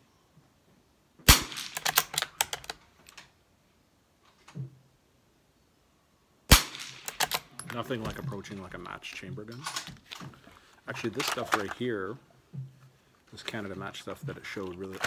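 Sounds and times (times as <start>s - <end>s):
rifle shots: 1.3s - 2.5s, 6.5s - 7.6s
rifle bolt clicking: 1.5s - 3.2s, 6.7s - 7.8s.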